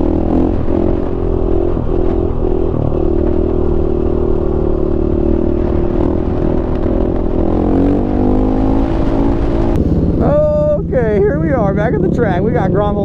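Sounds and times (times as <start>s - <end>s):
dirt bike engine high revs: 0.0s - 13.0s
wind rumbling on microphone: 0.0s - 13.0s.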